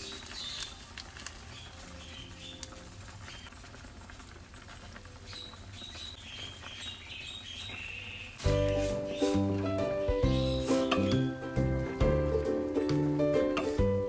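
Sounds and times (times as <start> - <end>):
squid bubbling and crackling in wok: 0.0 - 14.0
high squeaky chirps: 6.4 - 11.4.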